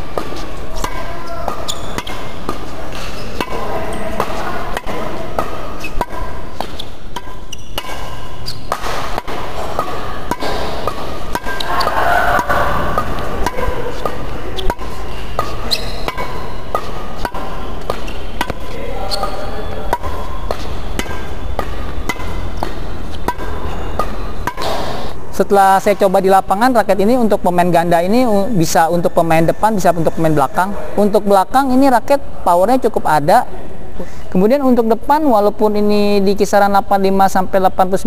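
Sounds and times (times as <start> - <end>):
shuttlecock struck with rackets: 0.0 - 25.2.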